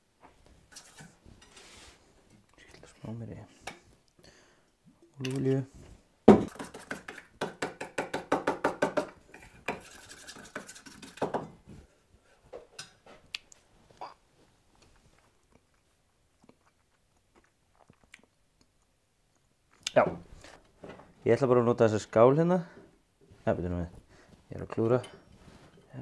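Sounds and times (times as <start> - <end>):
fork whisking in metal bowl: 9.6 - 11.2.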